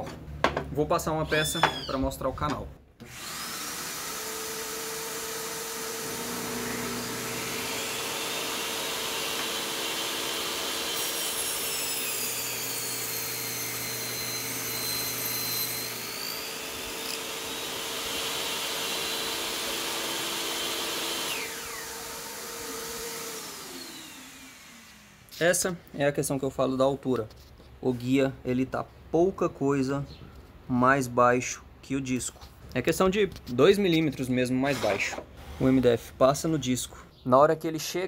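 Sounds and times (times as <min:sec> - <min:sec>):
table saw motor running: 0:03.0 - 0:25.4
saw blade cutting board: 0:03.0 - 0:25.5, 0:34.6 - 0:35.8.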